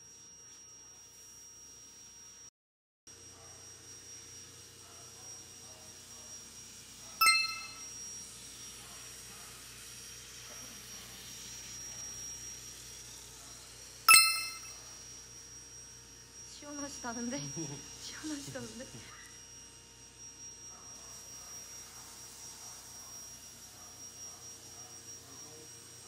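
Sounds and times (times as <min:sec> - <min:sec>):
sharp metallic dings: 0:07.2 - 0:07.9, 0:14.1 - 0:14.8.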